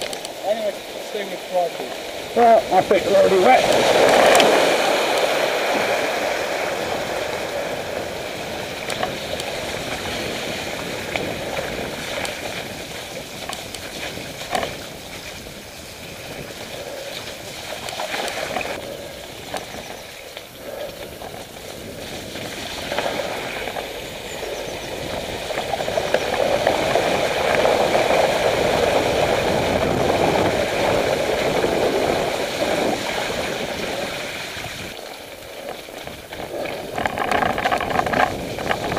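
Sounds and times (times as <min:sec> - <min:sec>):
bike tyres swishing through mud: 0:00.0 - 0:38.9
wind rushing over microphone: 0:00.0 - 0:38.9
bike knocks and rattles: 0:08.7 - 0:15.5, 0:35.6 - 0:38.9.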